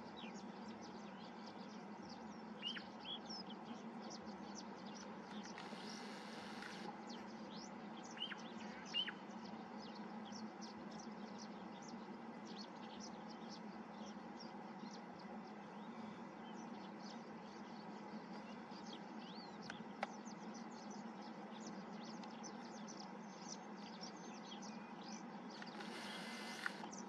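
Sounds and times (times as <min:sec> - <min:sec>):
small birds chirping: 0:00.0 - 0:27.0
bird down-slurred calls: 0:25.6 - 0:27.0
brief hiss of noise: 0:25.6 - 0:27.0.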